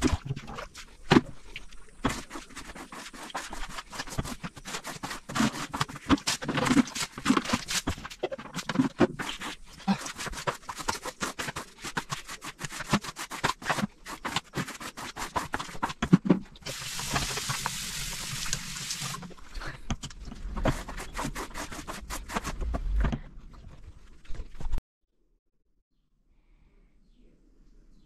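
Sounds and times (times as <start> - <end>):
brush scrubbing: 0.0 - 19.5, 20.4 - 23.0
water spray hissing: 16.7 - 19.2.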